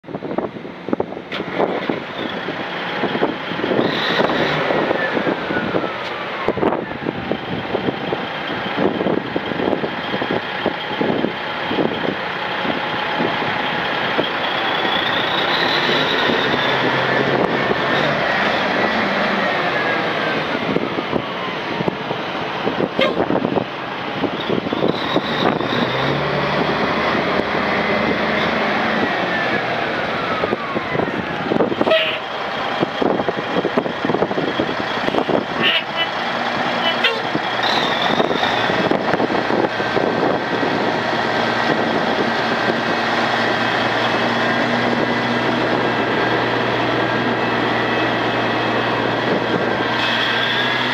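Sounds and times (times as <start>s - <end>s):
diesel truck engine revving: 0.1s - 50.9s.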